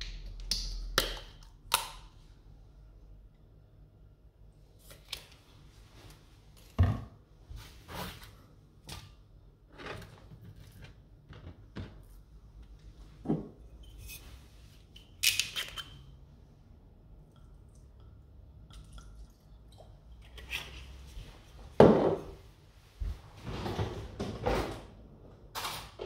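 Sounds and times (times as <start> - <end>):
bottle cap twisting crackle: 15.0 - 16.1.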